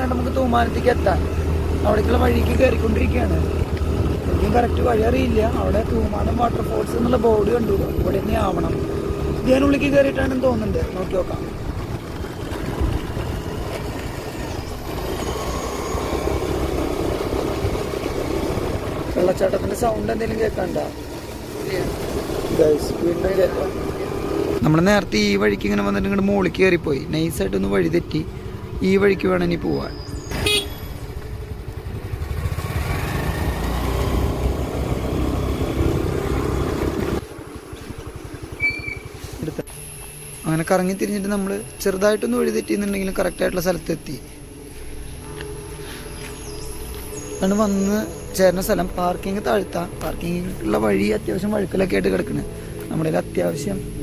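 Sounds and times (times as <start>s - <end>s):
motor scooter engine running: 0.0s - 26.2s, 27.1s - 43.2s
wind and road noise: 0.0s - 54.0s
brief high tone: 38.6s - 39.1s.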